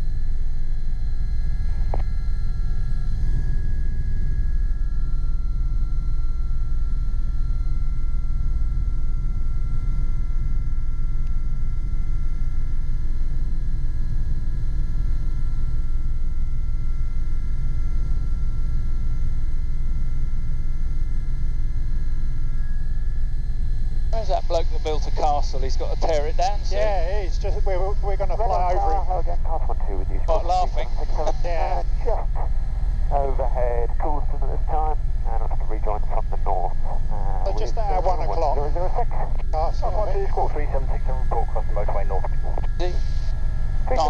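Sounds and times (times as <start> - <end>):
turbine whine: 0.0 - 44.0
helicopter cabin rumble: 24.2 - 43.0.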